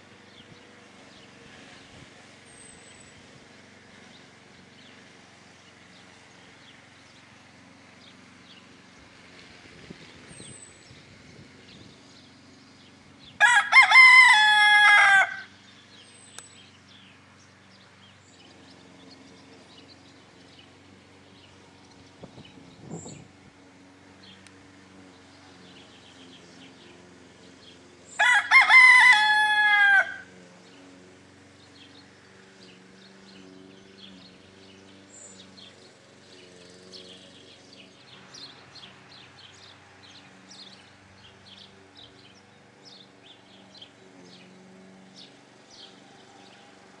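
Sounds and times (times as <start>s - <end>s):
cockerel crowing: 13.4s - 15.6s, 28.2s - 30.3s.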